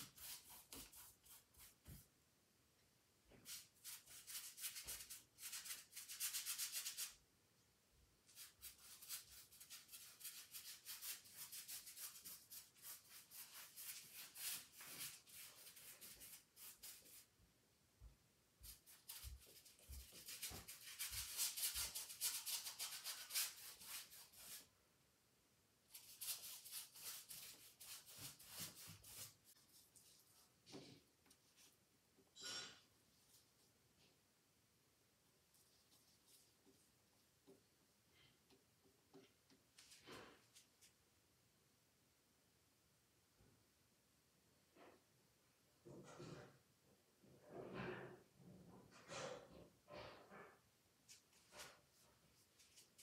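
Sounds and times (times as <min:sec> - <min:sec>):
paintbrush scrubbing canvas: 0:00.0 - 0:02.1, 0:03.3 - 0:07.2, 0:08.3 - 0:17.3, 0:18.6 - 0:24.7, 0:25.9 - 0:31.8, 0:35.5 - 0:37.6.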